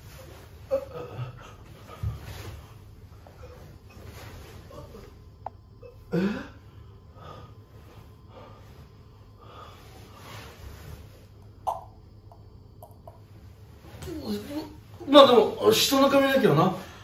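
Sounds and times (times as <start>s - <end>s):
man breathing heavily through nose: 6.1s - 10.7s.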